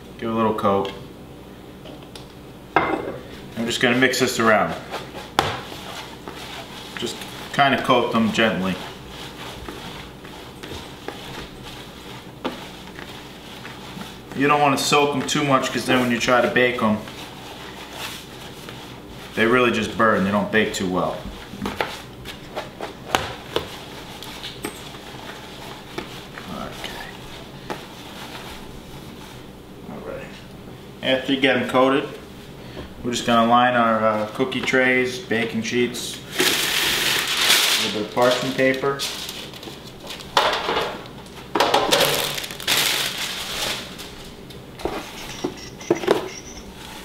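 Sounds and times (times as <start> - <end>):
leaves rustling in plastic bowl: 3.6 - 22.1, 23.6 - 29.5, 36.2 - 40.4, 41.0 - 44.4.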